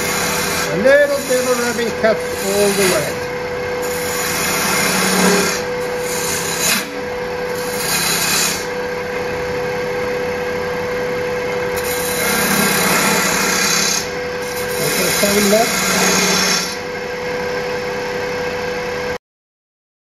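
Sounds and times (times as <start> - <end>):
gouge scraping wood shavings: 0.0 - 3.2, 3.8 - 6.9, 7.5 - 8.7, 11.8 - 16.8
wood lathe spinning: 0.0 - 17.8.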